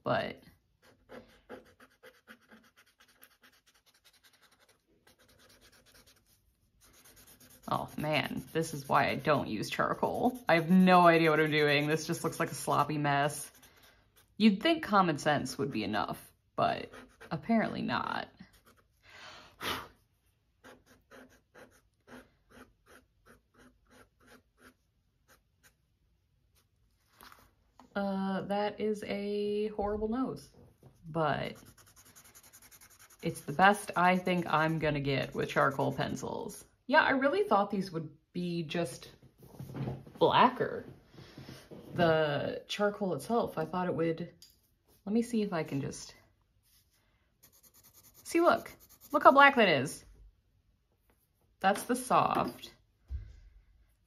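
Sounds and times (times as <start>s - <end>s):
charcoal pencil scratching paper: 0.7s - 14.4s, 16.8s - 17.6s, 18.4s - 19.0s, 20.6s - 25.8s, 31.4s - 36.3s, 46.7s - 49.5s.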